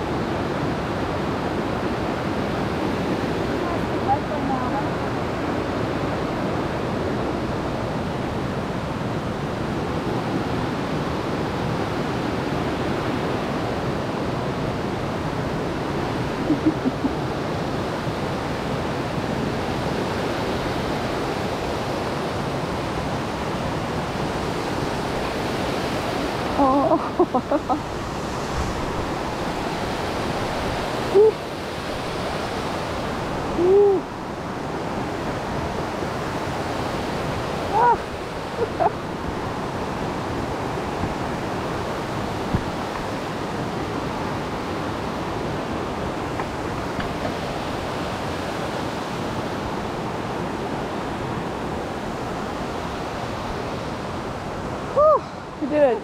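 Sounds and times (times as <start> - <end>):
stream rushing over rocks: 0.0 - 56.0.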